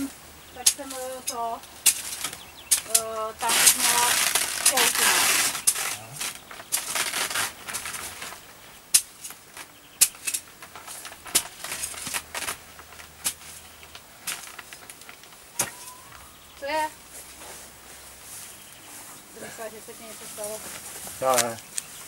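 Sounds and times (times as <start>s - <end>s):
spade scraping soil in wheelbarrow: 0.6s - 8.4s, 10.2s - 14.7s.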